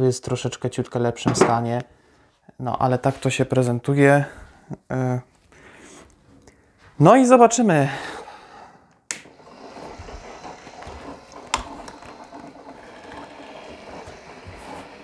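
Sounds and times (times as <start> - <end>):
warning beacon motors whirring: 9.3 - 15.0.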